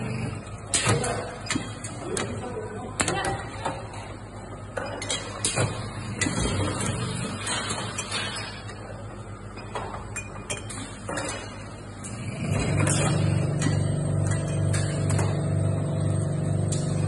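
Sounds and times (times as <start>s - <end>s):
motor humming with pulse: 0.0s - 1.4s
low machine hum: 0.0s - 17.0s.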